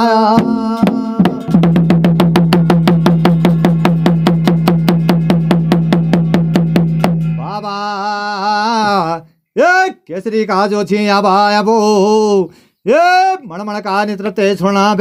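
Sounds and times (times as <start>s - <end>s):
man singing: 0.0s - 1.7s, 7.4s - 15.0s
rapid percussion strokes: 0.0s - 7.8s.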